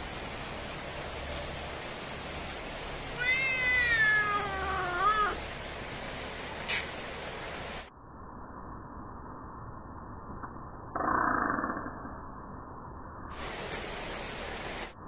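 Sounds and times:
cat meowing: 3.1 - 5.4.

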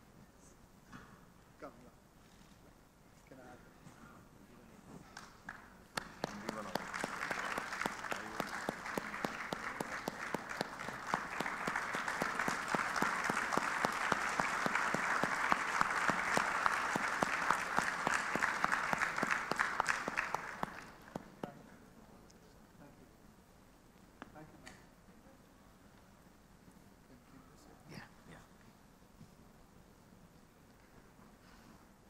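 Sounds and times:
audience applauding: 5.2 - 21.5.

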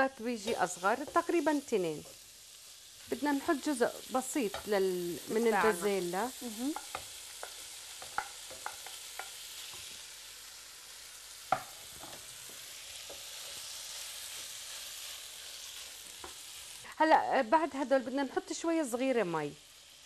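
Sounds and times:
meat sizzling in a pan: 0.0 - 20.0
wooden spoon knocking on pan: 6.7 - 9.4, 11.5 - 12.2.

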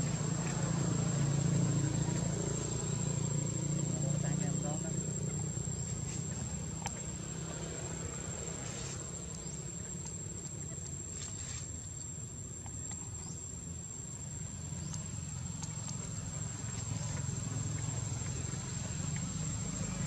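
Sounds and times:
insects droning: 0.0 - 20.0
low outdoor rumble: 0.0 - 20.0
faint chirps and clicks: 5.2 - 7.6, 14.5 - 20.0.

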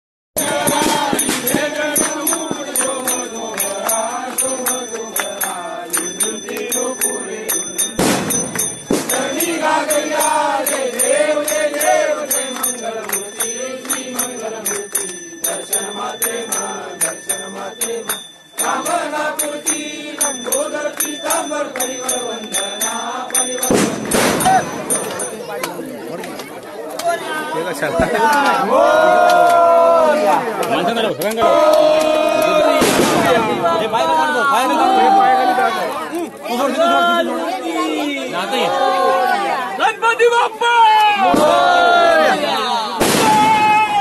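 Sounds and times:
jingling bell percussion: 0.4 - 25.9
voices chanting: 0.4 - 40.3, 41.0 - 43.7.

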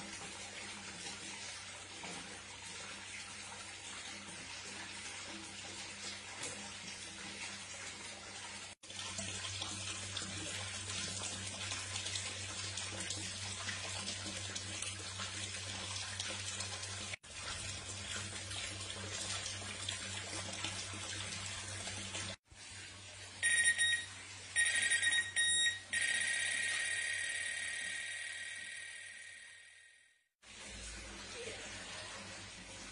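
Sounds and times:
bite alarm beeps: 23.4 - 29.2.

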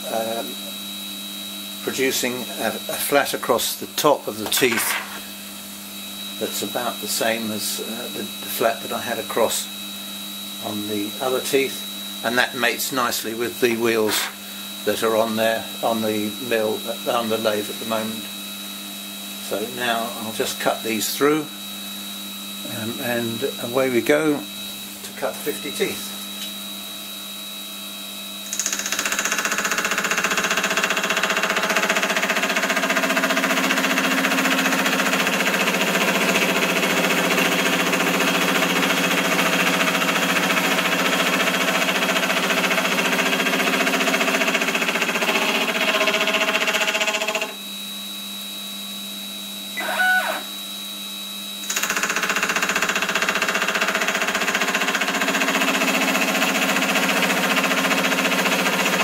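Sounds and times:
spindle motor hum: 0.0 - 59.0
milling cutter cutting metal: 1.9 - 5.4, 12.3 - 18.0, 28.5 - 47.6, 51.6 - 59.0
rotary table whirr: 4.0 - 5.4, 28.4 - 47.6, 51.6 - 59.0.

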